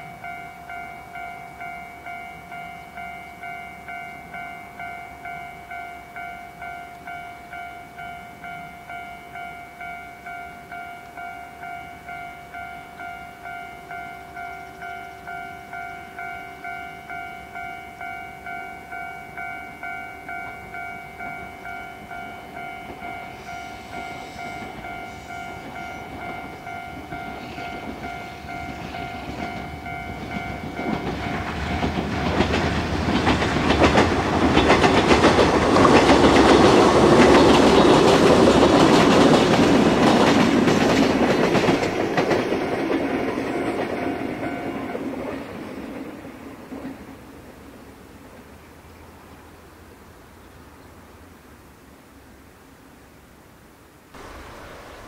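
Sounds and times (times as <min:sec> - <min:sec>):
level-crossing warning bell: 0:00.0 - 0:46.0
electric train passing: 0:00.0 - 0:52.2, 0:54.2 - 0:55.0
wheels clicking over rail joints: 0:19.3 - 0:47.6.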